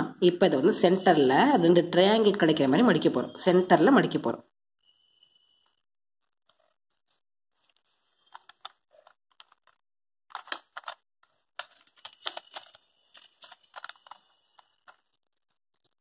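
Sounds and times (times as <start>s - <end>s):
paper rustling and crackling: 6.5s - 16.0s.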